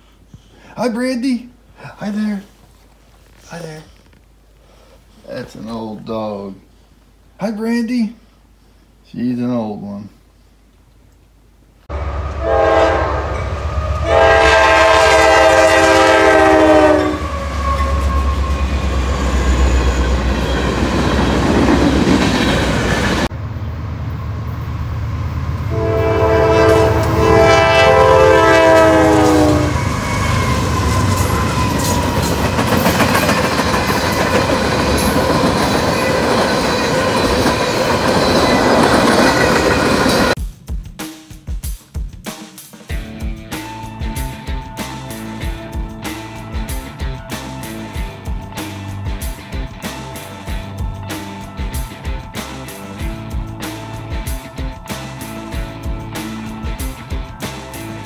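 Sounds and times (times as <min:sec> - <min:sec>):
locomotive air horn: 0:11.9 - 0:20.3, 0:25.6 - 0:32.3.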